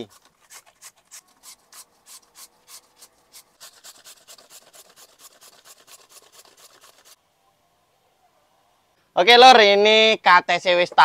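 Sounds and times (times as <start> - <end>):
slicer rasping strokes: 0.0 - 7.2.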